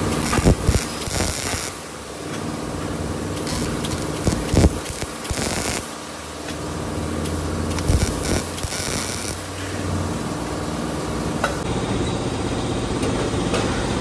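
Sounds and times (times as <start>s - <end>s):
crackling welding arc: 0.0s - 2.1s, 3.3s - 6.3s, 7.2s - 9.6s
steady welder hum: 0.0s - 13.0s.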